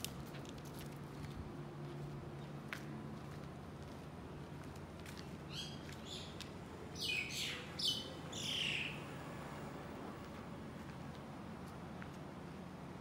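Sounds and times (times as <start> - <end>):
bird calling: 5.5 - 9.2.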